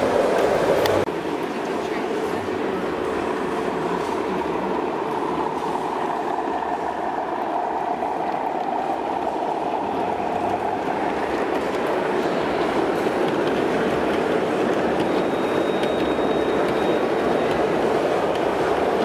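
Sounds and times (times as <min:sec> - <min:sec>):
model train running on track: 0:00.0 - 0:19.0.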